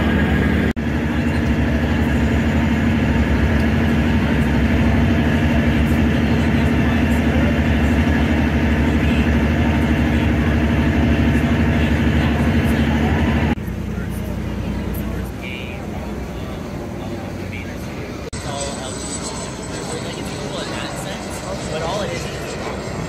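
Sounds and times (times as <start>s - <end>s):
ferry engines droning: 0.0s - 23.0s
passengers chattering: 0.0s - 23.0s.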